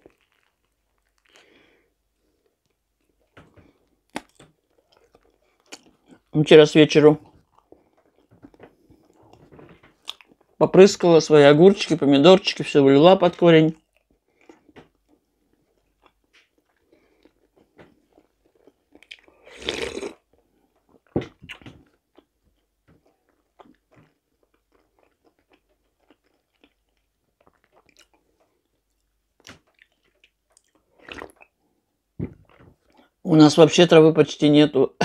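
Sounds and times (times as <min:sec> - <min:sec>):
close-up chewing: 0:00.0 - 0:06.4, 0:07.2 - 0:10.6, 0:13.8 - 0:31.7, 0:32.4 - 0:33.2
sip from a glass cup: 0:19.4 - 0:20.2, 0:31.0 - 0:31.4.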